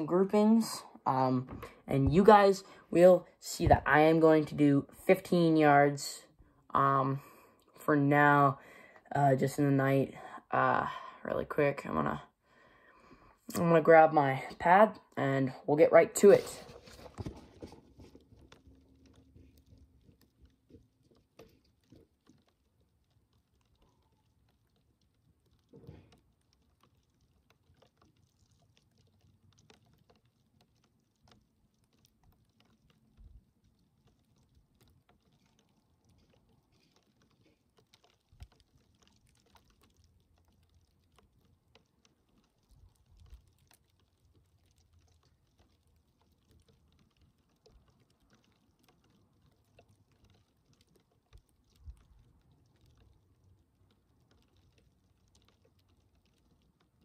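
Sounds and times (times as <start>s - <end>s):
faint clicks: 18.2s - 57.0s.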